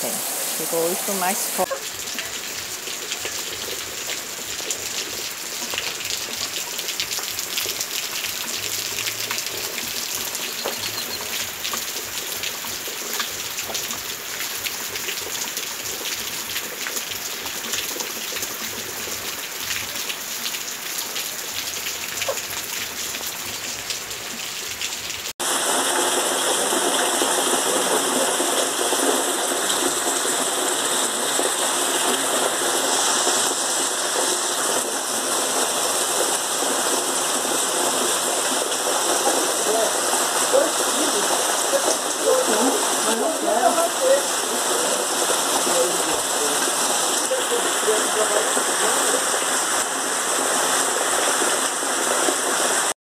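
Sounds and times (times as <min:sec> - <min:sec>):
raindrops tapping: 0:00.0 - 0:25.3
heavy rain falling: 0:00.0 - 0:53.0.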